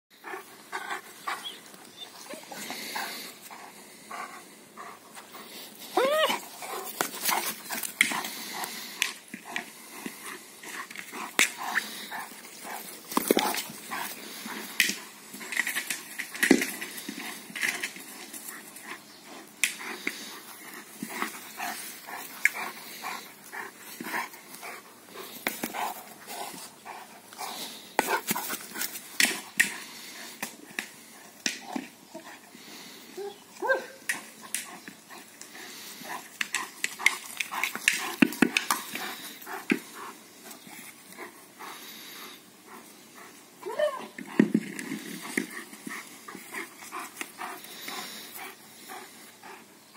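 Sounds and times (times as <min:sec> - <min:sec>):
dog whining: 0:06.0 - 0:06.5.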